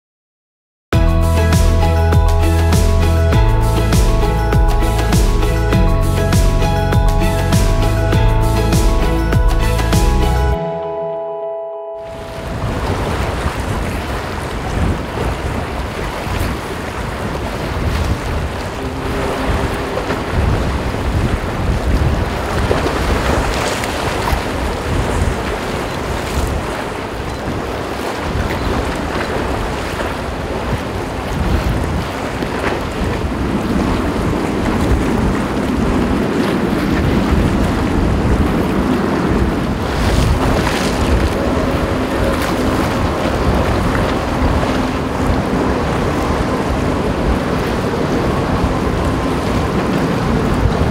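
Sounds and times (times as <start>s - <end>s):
choppy sea waves: 1.0s - 50.9s
wind buffeting microphone: 12.2s - 50.9s
ship engines droning: 18.4s - 21.8s, 33.4s - 50.9s.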